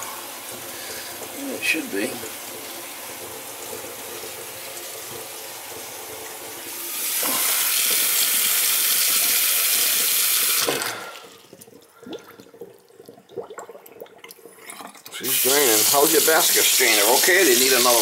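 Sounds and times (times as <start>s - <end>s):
faucet running into steel sink: 0.0s - 11.6s, 15.1s - 18.0s
water drips: 11.0s - 15.2s.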